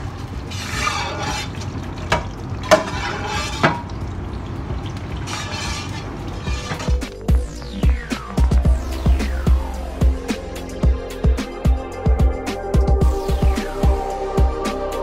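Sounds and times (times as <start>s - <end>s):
metal paddle scraping spices: 0.5s - 1.6s, 2.7s - 3.8s, 5.3s - 7.2s.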